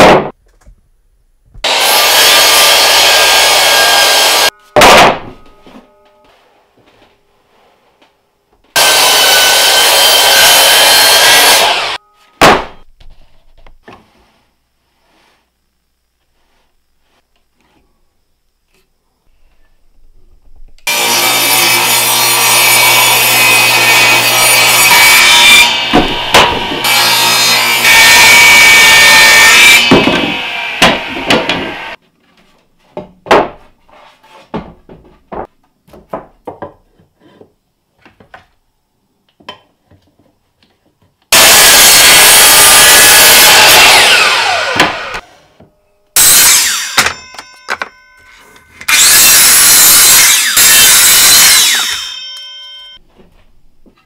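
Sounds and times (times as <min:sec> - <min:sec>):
miter saw cutting: 0:01.6 - 0:05.0, 0:08.8 - 0:12.0, 0:20.9 - 0:32.0, 0:41.3 - 0:45.2, 0:46.2 - 0:47.3, 0:48.9 - 0:52.5
table saw ripping wood: 0:01.6 - 0:05.4, 0:08.8 - 0:12.8, 0:20.9 - 0:32.0, 0:41.3 - 0:45.3, 0:46.2 - 0:47.4, 0:48.8 - 0:52.3
boards knocking: 0:25.9 - 0:26.9.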